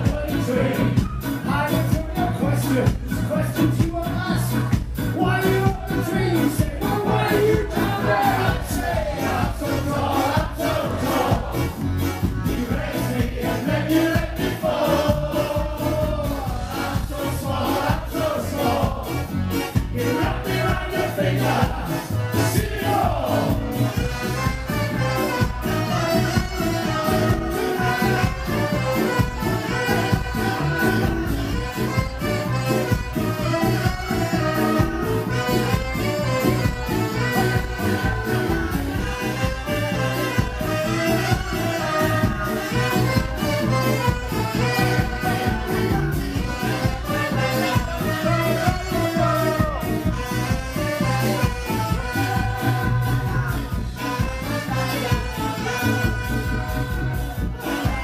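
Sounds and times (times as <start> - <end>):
vocalists singing together: 0.0 - 4.5, 5.2 - 24.2, 25.1 - 31.7, 36.2 - 43.2, 51.0 - 58.0
ska band playing live: 0.0 - 58.0
steady drum beat: 0.0 - 58.0.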